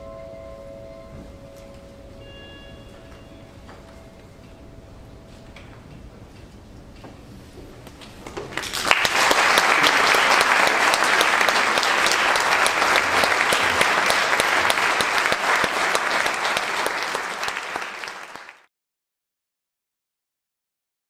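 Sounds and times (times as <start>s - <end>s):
audience applauding: 8.5s - 18.7s.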